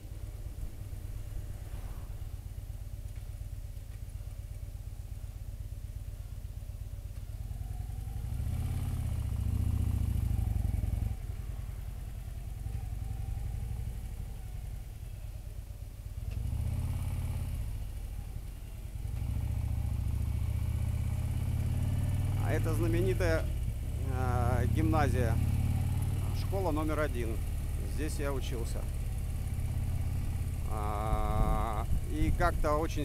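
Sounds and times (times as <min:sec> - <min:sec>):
motorcycle engine rumbling: 0:00.0 - 0:33.0.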